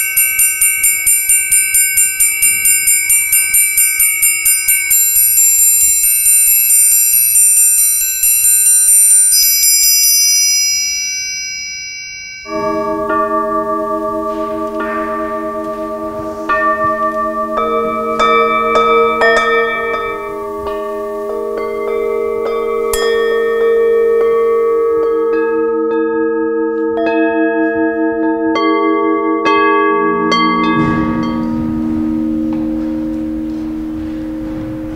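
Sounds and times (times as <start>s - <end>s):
metal triangle roll: 0.0s - 25.4s
singing bowls humming: 0.0s - 34.9s.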